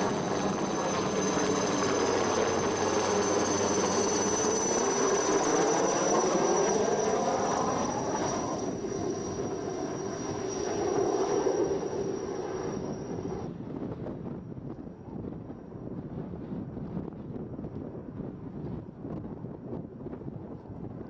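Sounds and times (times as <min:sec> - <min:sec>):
helicopter flying overhead: 0:00.0 - 0:16.3.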